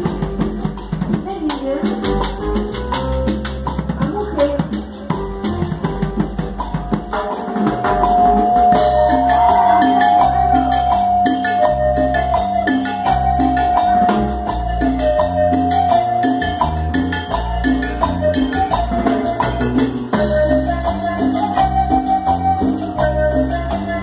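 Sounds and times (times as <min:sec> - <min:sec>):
live latin band: 0:00.0 - 0:24.0
timbales and drum kit beat: 0:00.0 - 0:24.0
long held note: 0:07.8 - 0:12.2.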